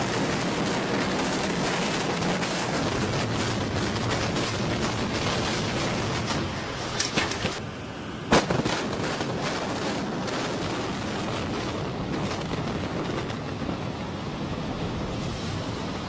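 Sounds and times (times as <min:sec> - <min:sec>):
building collapse rumble: 0:00.0 - 0:07.6
cracks: 0:06.9 - 0:07.6.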